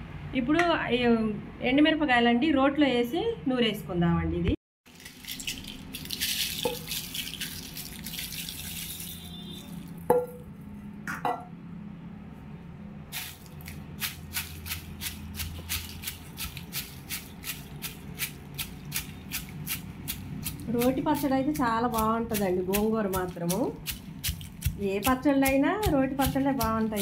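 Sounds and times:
dried chillies rattling into mortar: 4.9 - 9.3, 13.2 - 27.0
stone pestle pounding: 14.0 - 27.0.

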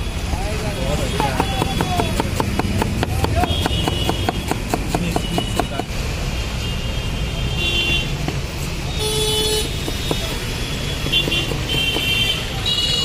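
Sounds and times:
vehicle horns tooting: 0.0 - 2.3, 3.2 - 8.3, 8.9 - 13.0
traffic rumble: 0.0 - 13.0
knife chopping on wooden block: 1.2 - 5.9, 9.6 - 12.3.

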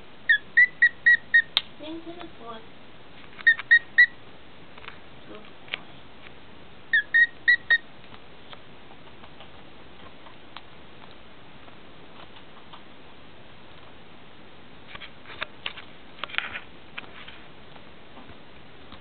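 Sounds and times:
cockatiel whistling: 0.3 - 1.6, 3.4 - 4.2, 6.9 - 7.8.

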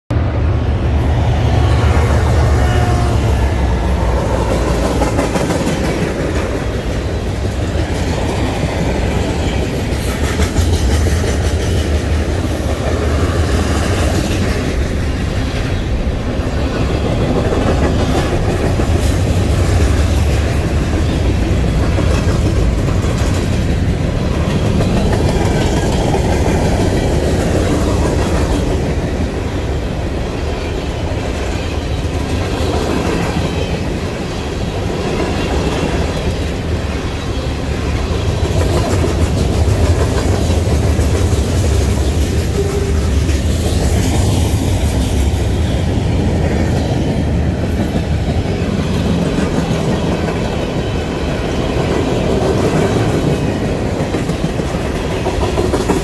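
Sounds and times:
diesel locomotive passing: 0.1 - 56.0
train cars rumbling past: 0.1 - 56.0.

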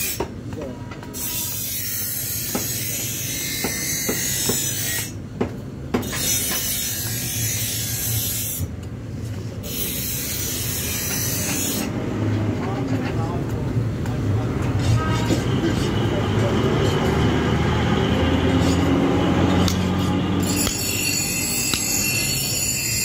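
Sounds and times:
hatchet chopping wood: 20.5 - 21.0, 21.7 - 22.0.

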